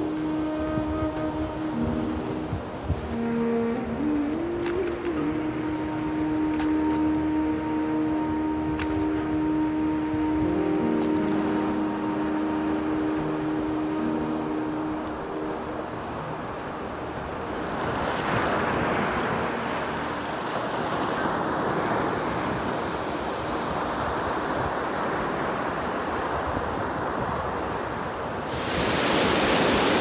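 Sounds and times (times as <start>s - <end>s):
surf washing onto beach: 0.0s - 30.0s
wind on microphone: 0.0s - 30.0s.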